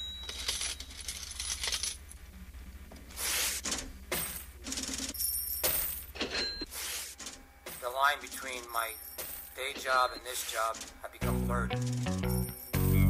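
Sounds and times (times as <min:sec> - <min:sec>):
coins clinking and spilling: 0:00.0 - 0:02.1.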